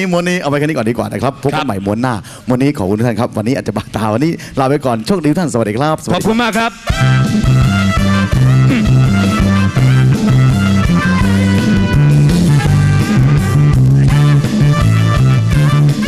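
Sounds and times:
instrumental music with bass line: 6.1 - 16.0.

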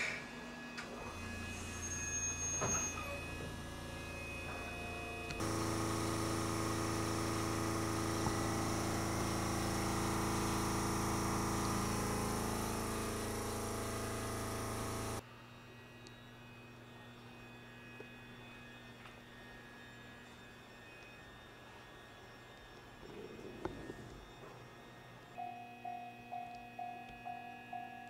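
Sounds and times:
railcar equipment humming: 0.0 - 15.2, 25.2 - 28.0
louder machine running: 0.0 - 26.3.

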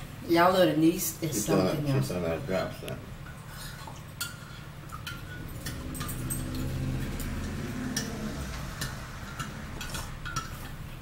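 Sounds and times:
metal spoon clinking in ceramic mug: 4.2 - 8.2, 8.8 - 10.8.

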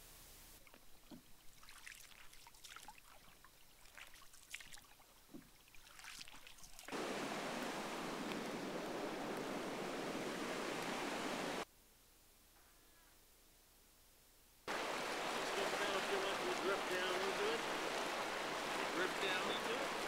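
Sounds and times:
water splashing and dripping: 0.6 - 11.6, 14.7 - 20.0
rushing whitewater: 6.9 - 11.6, 14.7 - 20.0.

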